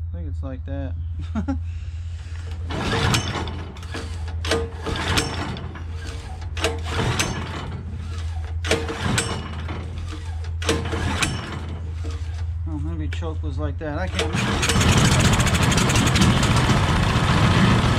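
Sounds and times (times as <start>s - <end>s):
engine cranking: 2.5s - 12.6s, 14.0s - 17.9s.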